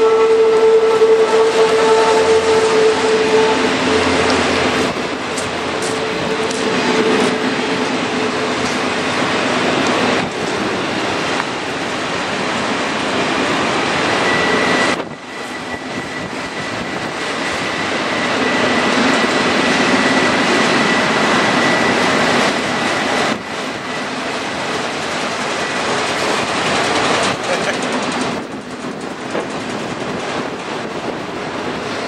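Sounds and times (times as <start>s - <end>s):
high wheel squeal: 0.0s - 9.2s, 13.7s - 24.3s
steel wheels rushing on rail: 0.0s - 32.0s.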